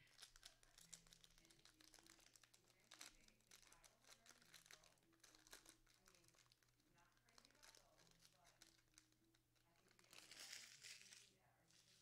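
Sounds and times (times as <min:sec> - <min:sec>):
wrappers crinkling and tearing: 0:00.0 - 0:12.0.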